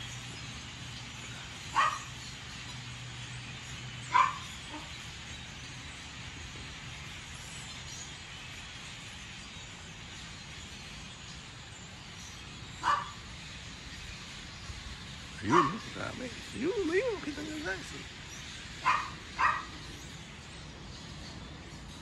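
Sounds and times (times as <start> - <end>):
steady background hiss: 0.0 - 22.0
loud animal calls: 15.4 - 18.0.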